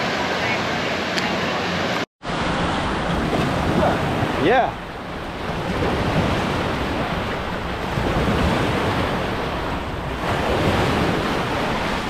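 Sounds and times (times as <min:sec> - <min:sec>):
surf washing onto shore: 0:00.0 - 0:12.0
wind on microphone: 0:02.4 - 0:12.0.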